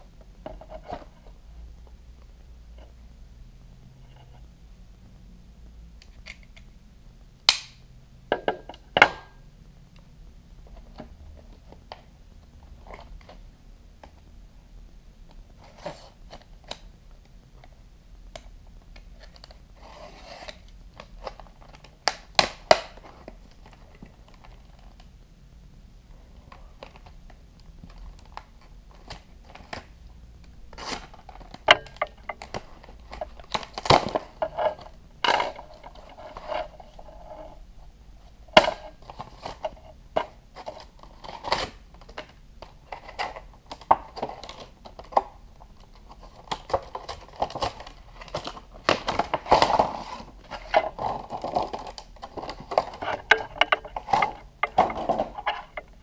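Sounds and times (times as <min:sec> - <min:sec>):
sharp clicks and knocks: 0:52.4 - 0:56.0.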